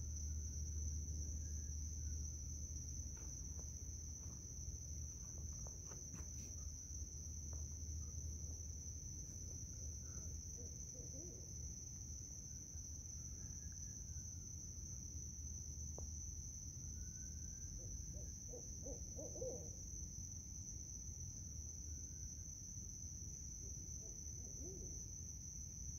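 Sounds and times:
distant owls hooting: 17.7 - 19.8.

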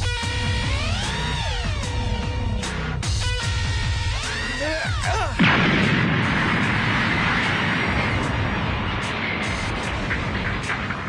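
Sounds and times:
deep bass hits dropping in pitch: 0.0 - 11.0
short noisy hit: 5.4 - 11.0.

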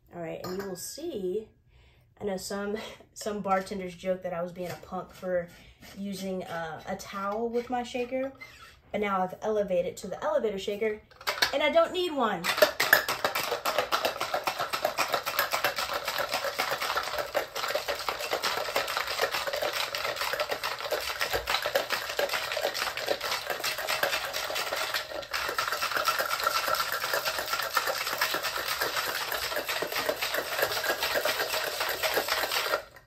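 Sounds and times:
ice rattling in cocktail shaker: 12.4 - 33.0.

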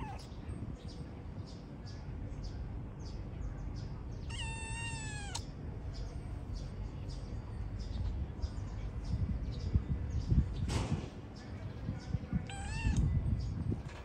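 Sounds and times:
kitten meowing: 0.0 - 0.3, 4.3 - 5.4, 12.4 - 13.1.

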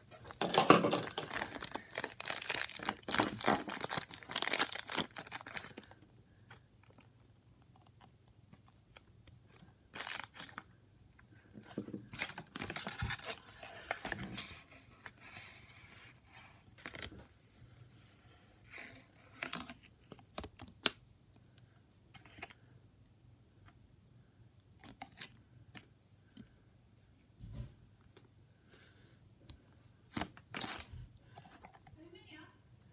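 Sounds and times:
plastic wrapper crinkling: 0.1 - 6.0, 8.6 - 10.6, 12.1 - 14.4.

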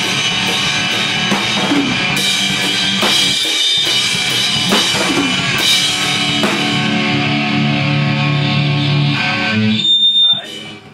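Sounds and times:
drum kit strikes: 0.0 - 9.7
electric guitar rock: 0.0 - 10.9.

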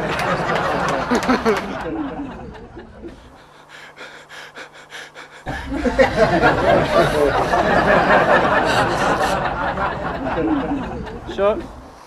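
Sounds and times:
steady low hum: 0.0 - 12.0
person laughing and snickering: 1.0 - 3.7, 4.5 - 9.5.

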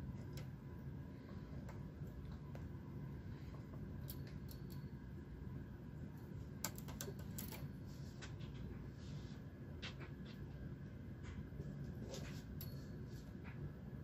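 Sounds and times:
faint low hum: 0.0 - 14.0
small metal clicks: 4.0 - 5.0, 6.6 - 7.7.

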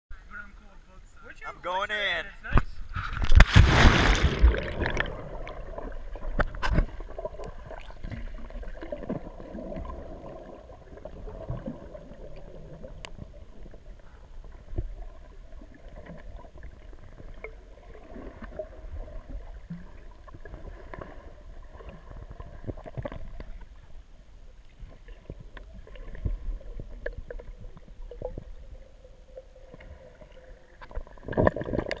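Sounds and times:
small clicks and knocks underwater: 2.6 - 3.6, 4.5 - 24.0, 24.6 - 32.0
underwater rumble of water: 2.9 - 32.0
burst of water noise: 3.1 - 6.9.

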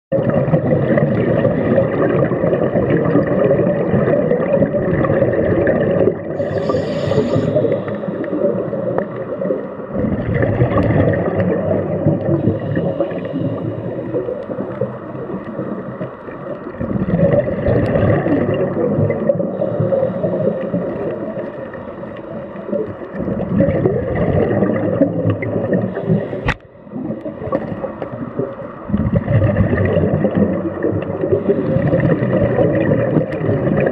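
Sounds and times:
diver breathing bubbles gurgling: 0.1 - 33.9
short hiss: 6.4 - 8.0.

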